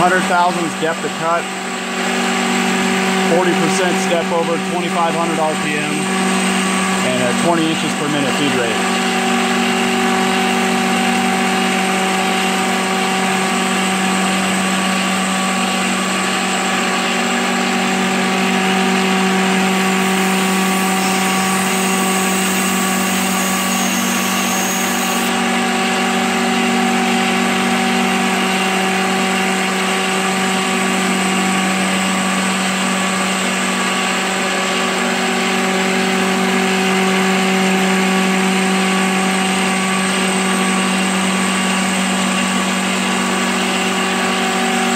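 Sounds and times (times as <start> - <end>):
milling machine humming: 0.0 - 25.4.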